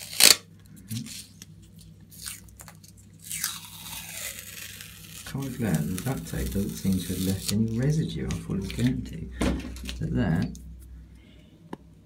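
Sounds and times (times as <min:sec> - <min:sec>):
duct tape peeling off wall: 0:00.0 - 0:00.4, 0:02.1 - 0:09.0.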